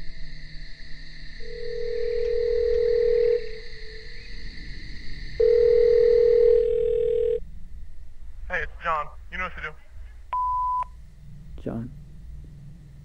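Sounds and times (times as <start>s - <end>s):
telephone ringback tone: 1.5s - 3.5s, 5.4s - 7.4s.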